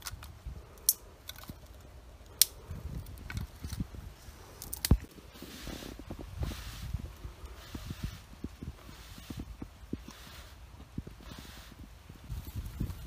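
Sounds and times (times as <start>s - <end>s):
dry twigs snapping: 0.0s - 3.9s, 4.6s - 5.2s
rustling of dry leaves: 0.0s - 13.0s.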